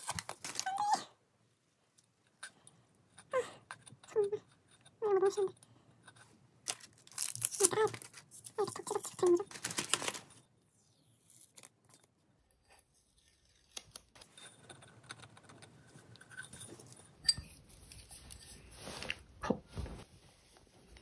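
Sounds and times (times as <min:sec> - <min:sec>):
cup handling rustling and scraping: 0:14.2 - 0:20.1.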